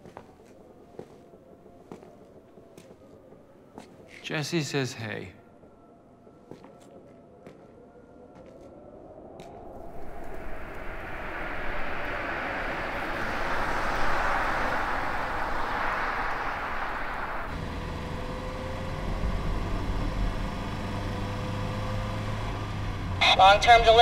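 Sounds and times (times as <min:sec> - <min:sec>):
low engine drone: 0:09.2 - 0:24.0
tyres and engine rushing: 0:09.7 - 0:24.0.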